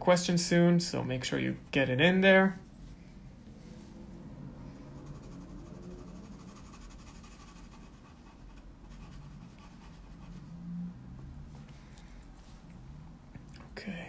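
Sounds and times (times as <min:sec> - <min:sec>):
low hum: 0:00.8 - 0:14.0
pencil scratching on paper: 0:05.0 - 0:10.4.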